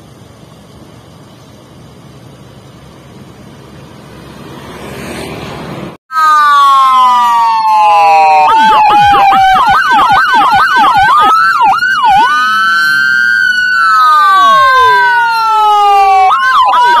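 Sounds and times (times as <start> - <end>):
electronic siren yelp and wail: 6.1 - 17.0.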